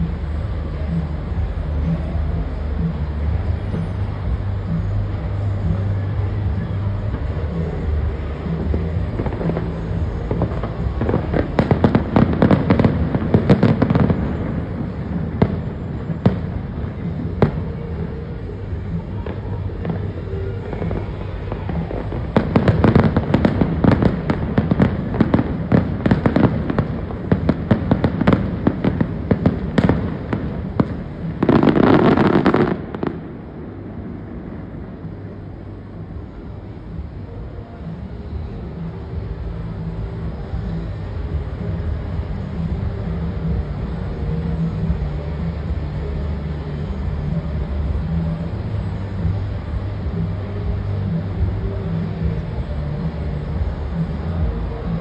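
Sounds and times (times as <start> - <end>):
loud rushing noise: 0.0 - 55.0
steady low hum: 0.0 - 55.0
fireworks crackling bangs and pops: 7.0 - 35.5.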